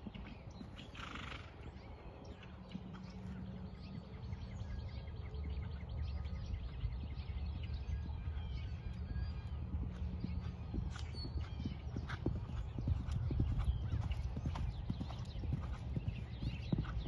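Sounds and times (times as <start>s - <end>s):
horse hoofbeats on sand: 8.1s - 17.0s.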